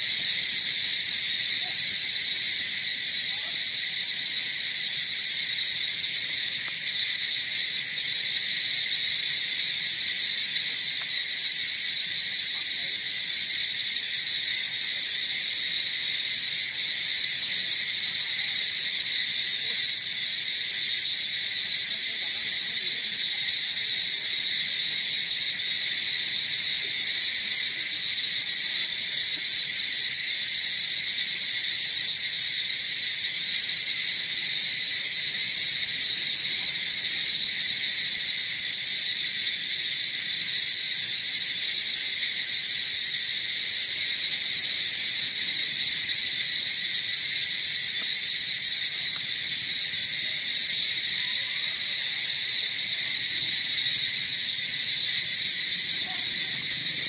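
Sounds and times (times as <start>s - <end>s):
insect chorus buzzing: 0.0s - 57.0s.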